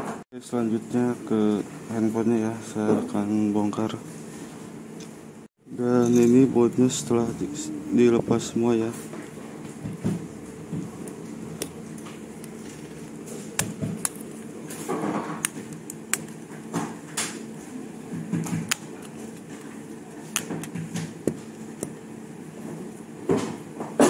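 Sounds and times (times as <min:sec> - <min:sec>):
clicks of phone parts being handled: 0:15.4 - 0:16.4.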